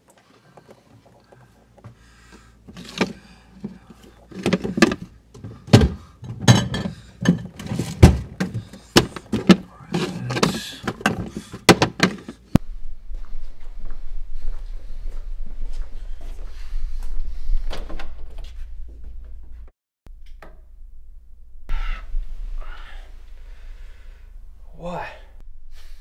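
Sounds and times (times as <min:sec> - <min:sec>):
refrigerator hum: 0:00.1 - 0:12.6.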